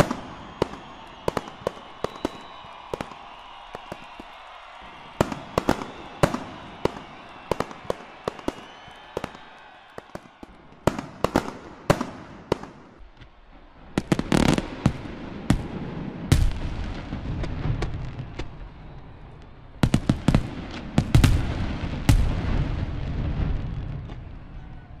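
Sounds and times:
firework bangs and crackles: 0:00.0 - 0:25.0
firework booms with low rumble: 0:13.8 - 0:18.7, 0:19.8 - 0:24.8.

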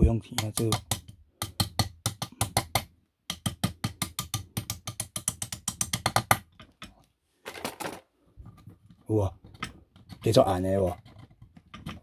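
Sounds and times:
hammer tapping on metal: 0:00.3 - 0:06.5.

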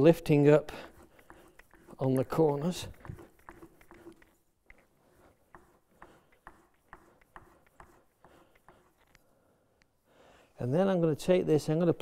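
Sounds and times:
blade stroking leather strop: 0:00.6 - 0:09.2.

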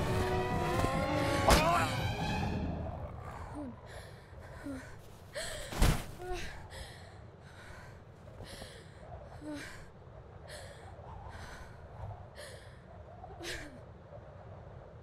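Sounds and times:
low steady rumble: 0:00.0 - 0:13.8.

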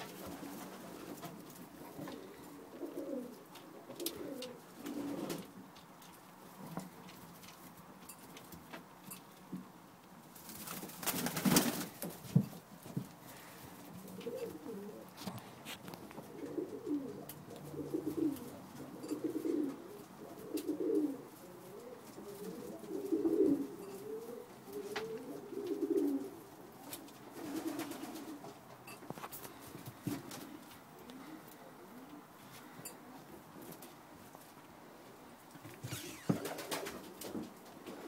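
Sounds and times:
pigeons cooing: 0:00.0 - 0:05.6, 0:13.4 - 0:15.4, 0:16.0 - 0:28.6, 0:30.1 - 0:33.6
rustling and knocks: 0:10.6 - 0:13.4.

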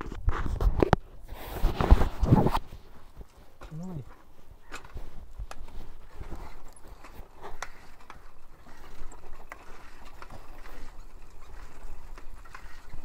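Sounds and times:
bicycle clicks and rattles: 0:02.6 - 0:13.0.

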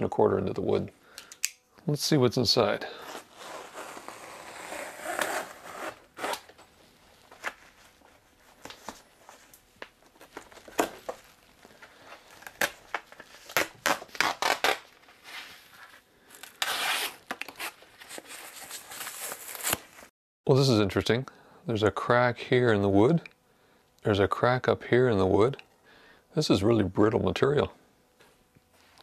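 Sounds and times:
fabric tearing: 0:03.0 - 0:06.5, 0:13.4 - 0:15.5, 0:16.4 - 0:17.8.

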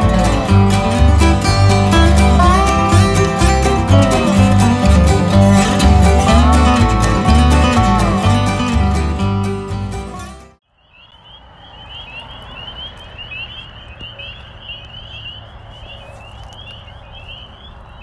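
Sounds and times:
guitar and banjo music: 0:00.0 - 0:10.6
high chirping calls: 0:10.6 - 0:18.0.

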